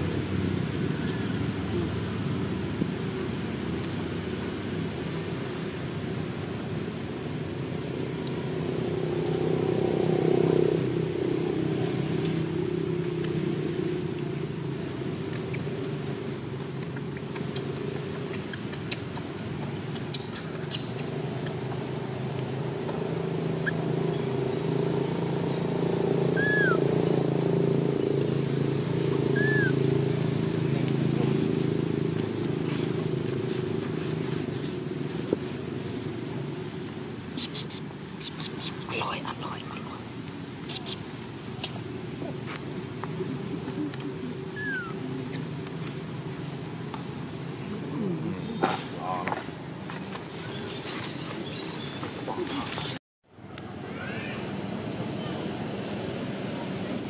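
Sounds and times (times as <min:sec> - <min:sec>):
vehicle engine running: 0:07.8 - 0:36.6.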